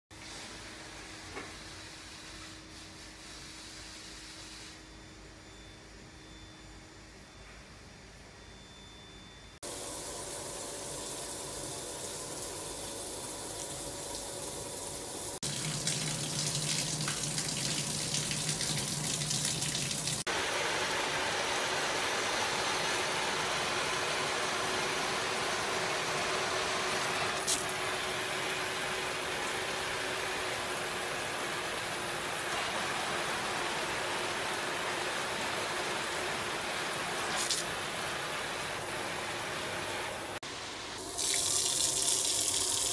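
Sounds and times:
shower jets spraying water: 9.6s - 40.4s, 41.0s - 42.9s.

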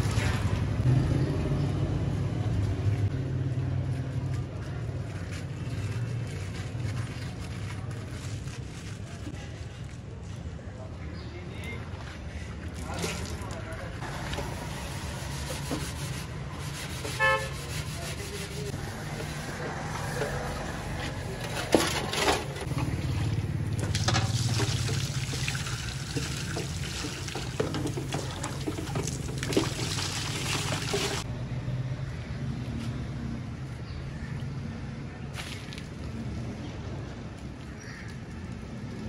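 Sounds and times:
water pouring from a jug: 0.0s - 0.8s, 12.5s - 14.4s, 22.7s - 31.3s
water sloshing and splashing: 0.0s - 0.8s, 11.8s - 14.8s, 19.0s - 31.3s.

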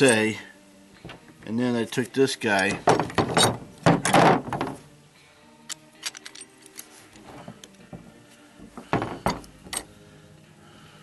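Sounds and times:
metal fittings rattling: 0.0s - 0.4s, 1.8s - 4.8s, 8.6s - 9.9s
small clicks and clinks: 5.6s - 6.9s.

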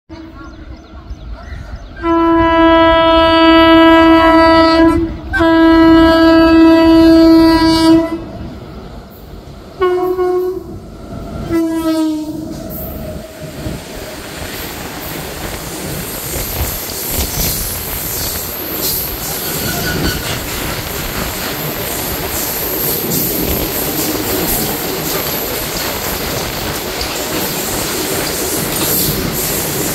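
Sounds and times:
freight train rumbling: 0.1s - 29.9s
locomotive air horn blasts: 2.0s - 8.4s, 9.8s - 10.8s, 11.4s - 12.4s.

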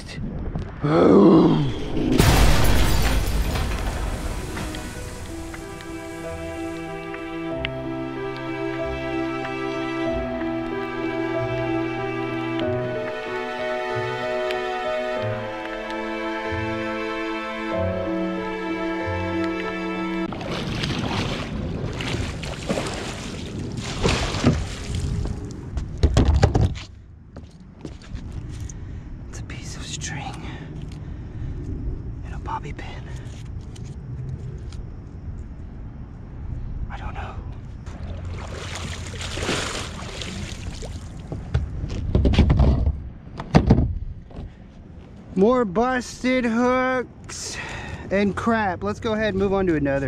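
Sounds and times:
water sloshing and dripping: 20.2s - 25.7s, 37.8s - 41.7s.

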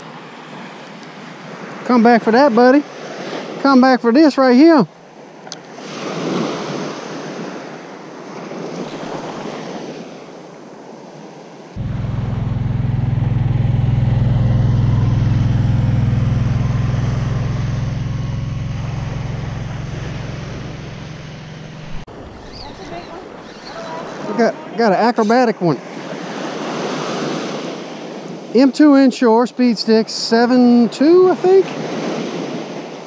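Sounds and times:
surf washing on shore: 4.6s - 28.7s
utility vehicle engine driving past: 11.8s - 24.8s.

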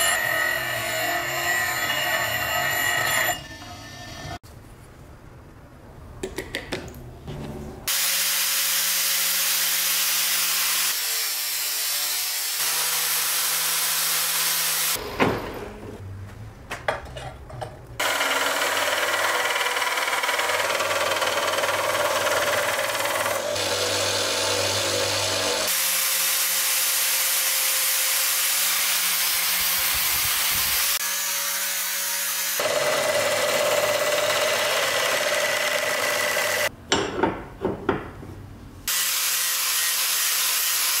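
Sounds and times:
grinder on metal: 0.0s - 4.4s, 18.0s - 36.7s, 38.9s - 41.0s
belt sander running: 32.6s - 36.7s.

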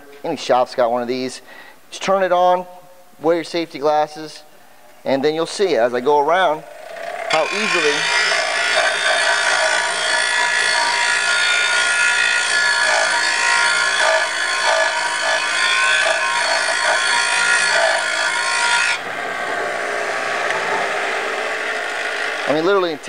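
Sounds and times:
wire wheel grinding metal: 6.0s - 23.0s.

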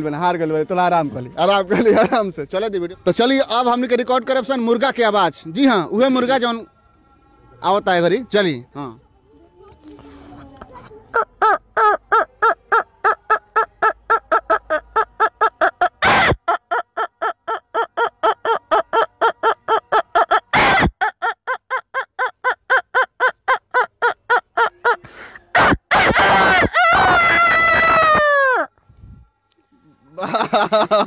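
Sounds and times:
man imitating rooster clucks: 11.1s - 28.7s
sharp intakes of breath: 25.0s - 25.5s.

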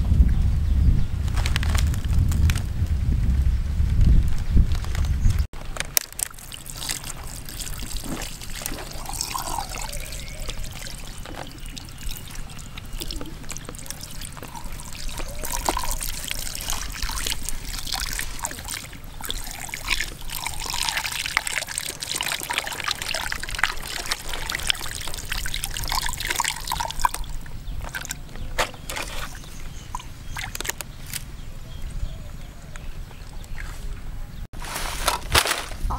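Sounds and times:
water pouring and splashing: 5.6s - 28.2s.

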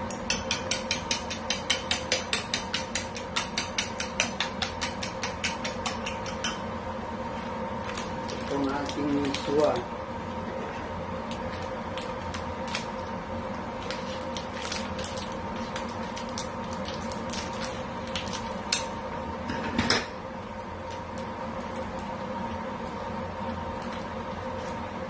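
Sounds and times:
steady electrical hum: 0.0s - 25.0s
paper wrapper crinkling: 7.8s - 9.8s, 11.2s - 13.2s, 13.8s - 18.7s.

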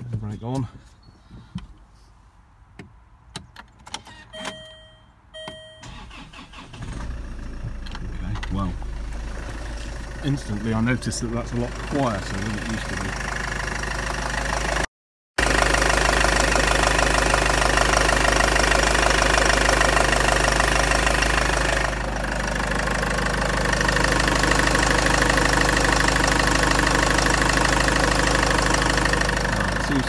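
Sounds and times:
diesel engine idling: 5.8s - 30.0s.

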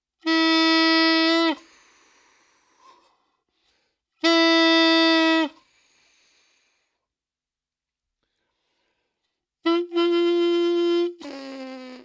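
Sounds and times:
saxophone mouthpiece held notes: 9.6s - 12.0s.

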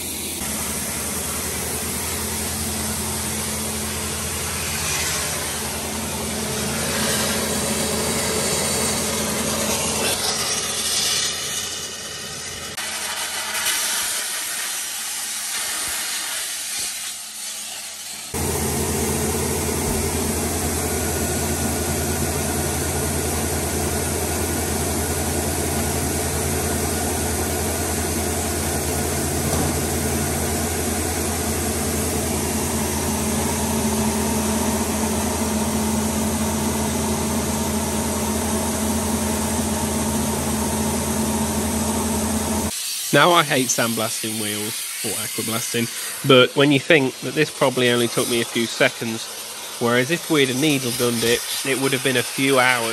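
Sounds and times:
machine humming: 0.0s - 12.7s, 18.4s - 43.9s
abrasive blaster spraying hiss: 0.0s - 18.4s, 42.7s - 52.9s.

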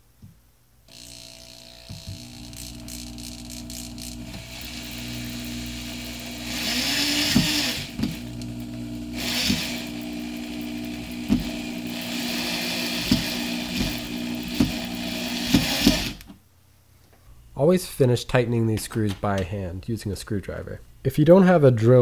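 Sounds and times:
electric drill whining: 0.9s - 16.3s.

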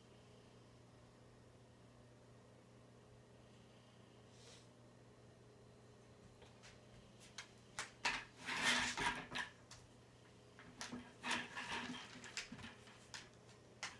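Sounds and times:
dog claws clicking on hard floor: 7.3s - 9.9s, 10.6s - 13.9s
scraping and rubbing: 8.1s - 9.6s, 10.7s - 13.9s.

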